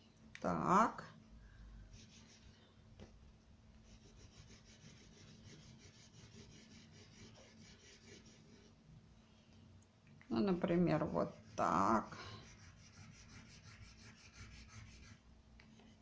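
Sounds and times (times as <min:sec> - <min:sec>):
crayon scratching on paper: 0:03.8 - 0:08.7, 0:10.9 - 0:15.2.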